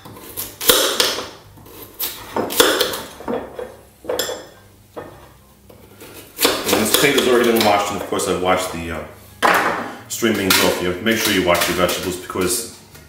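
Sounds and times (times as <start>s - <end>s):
knife scraping plate: 5.7s - 8.0s.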